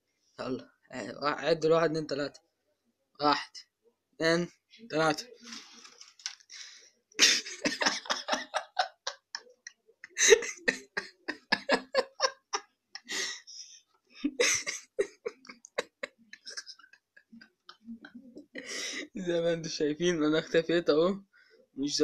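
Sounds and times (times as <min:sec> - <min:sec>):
person giggling: 0:06.6 - 0:19.2.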